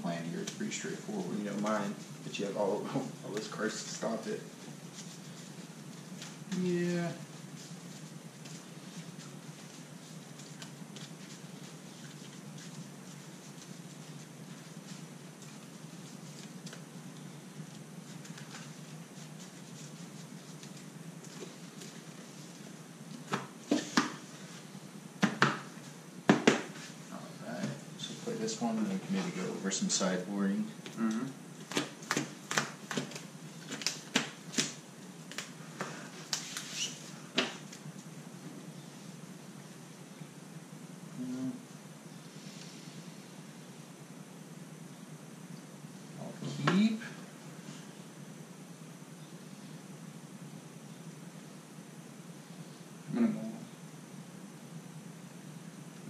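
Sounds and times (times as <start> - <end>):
steady low hum: 0.0 - 56.0
playing cards being dealt: 7.5 - 14.1, 23.1 - 24.3, 30.8 - 37.8
cards being shuffled: 18.0 - 22.2, 30.8 - 38.1.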